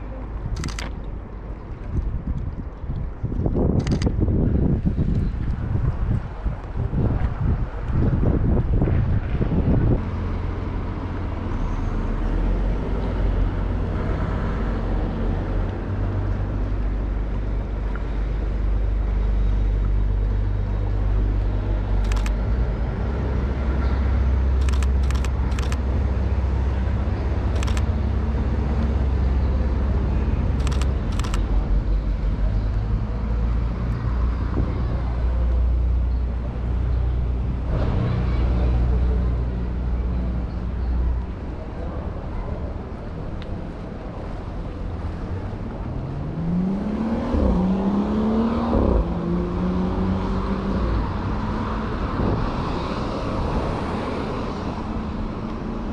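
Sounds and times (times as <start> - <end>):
steady low rumble: 0.0 - 46.8
camera shutter clicks: 0.6 - 1.0, 3.8 - 4.1, 22.0 - 22.4, 24.6 - 25.8, 27.5 - 27.9, 30.6 - 31.5.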